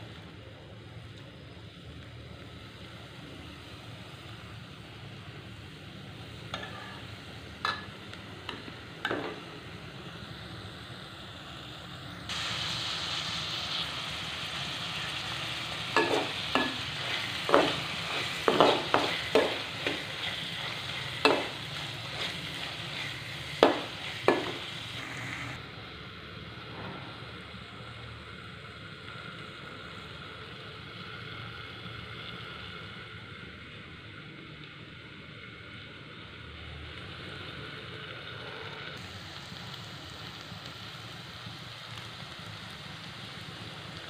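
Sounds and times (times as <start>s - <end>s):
vegetables sizzling in a pan: 0.0s - 44.0s
metal spoon scraping and knocking pan: 16.0s - 24.7s.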